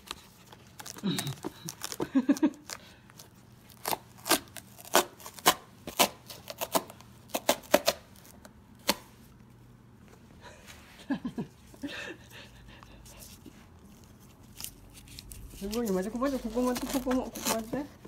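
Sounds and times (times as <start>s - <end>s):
cardboard tearing: 0.0s - 9.0s, 14.1s - 18.0s.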